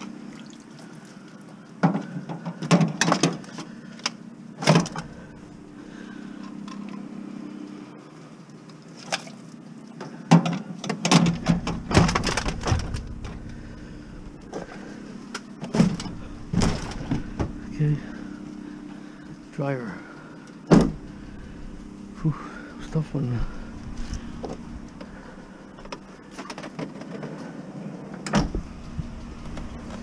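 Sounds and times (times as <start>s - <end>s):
vehicle engine idling: 3.4s - 8.4s, 11.2s - 30.0s
sheet-metal clunks and scraping: 10.9s - 18.3s.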